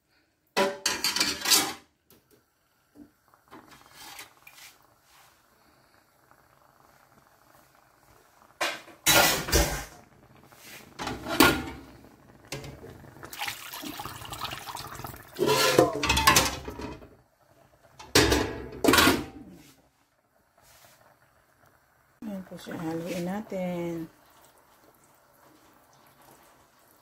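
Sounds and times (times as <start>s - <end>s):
metal pot and utensils clattering: 0.6s - 1.9s, 8.6s - 10.0s, 11.0s - 11.8s, 15.3s - 17.1s, 18.0s - 19.4s.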